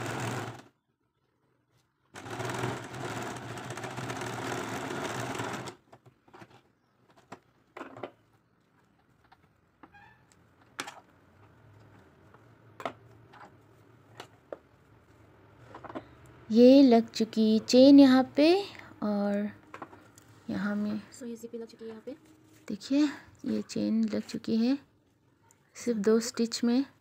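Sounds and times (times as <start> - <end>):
sewing machine running: 0.0 - 0.7, 2.2 - 5.8.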